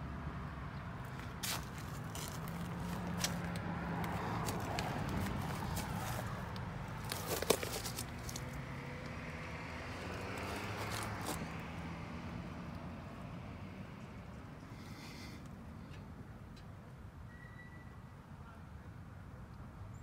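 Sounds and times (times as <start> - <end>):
footsteps on pavement: 1.0 - 9.2, 9.9 - 11.5
phone rustling in hand: 1.2 - 8.6.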